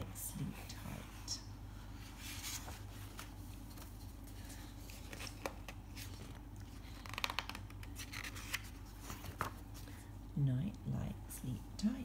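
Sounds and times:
low steady hum: 0:00.0 - 0:12.0
page turning: 0:02.0 - 0:09.8.

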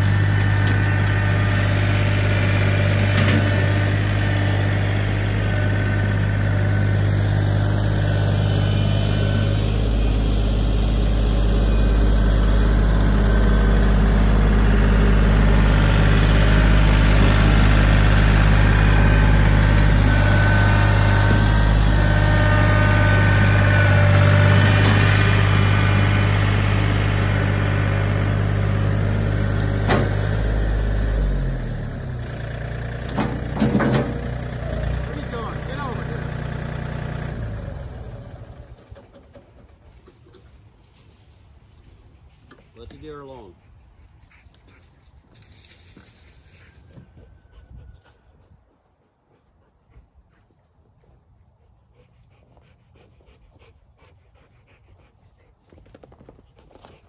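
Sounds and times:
tractor diesel engine running: 0:00.0 - 0:41.1.

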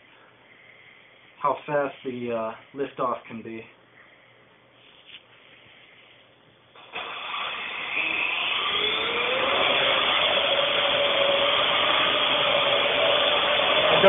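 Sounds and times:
quadcopter rotors whirring: 0:07.0 - 0:14.0.

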